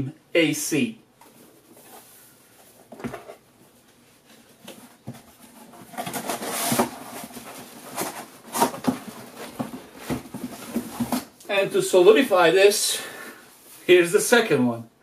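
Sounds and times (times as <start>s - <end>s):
cardboard boxes rustling: 1.3s - 11.4s.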